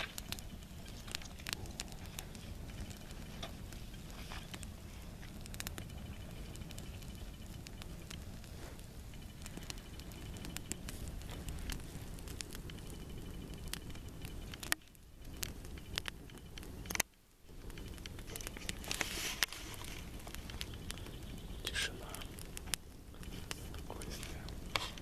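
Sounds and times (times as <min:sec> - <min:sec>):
campfire crackling and popping: 0:00.0 - 0:25.0
steady low rumble: 0:00.0 - 0:25.0.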